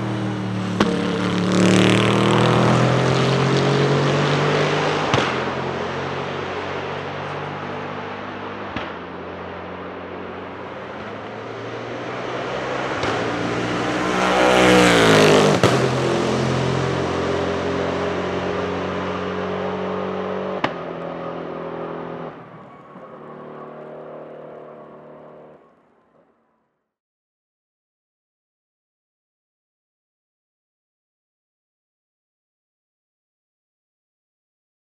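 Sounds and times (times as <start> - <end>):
race car passing at speed: 0.0 - 25.8.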